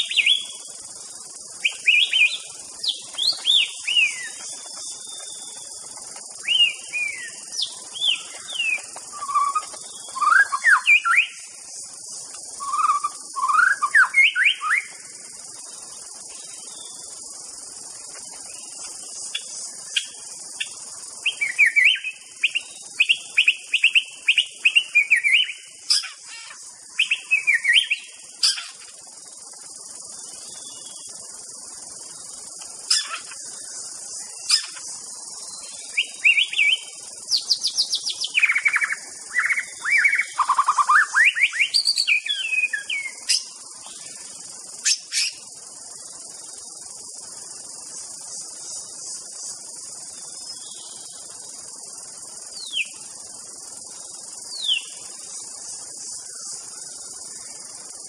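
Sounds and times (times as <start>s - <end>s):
bird singing whistled notes: 0.0s - 0.7s, 1.5s - 11.6s, 12.5s - 15.2s, 19.3s - 28.8s, 35.4s - 44.2s, 52.5s - 53.0s, 54.4s - 55.2s
steady high-pitched hiss: 0.0s - 58.0s.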